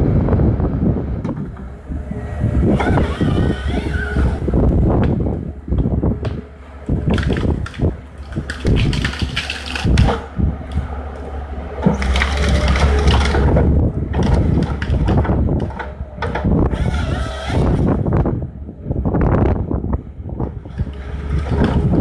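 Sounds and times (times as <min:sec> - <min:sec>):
diesel engine under load: 0:00.0 - 0:22.0
branches snapping and crackling: 0:07.0 - 0:11.2, 0:11.9 - 0:15.8.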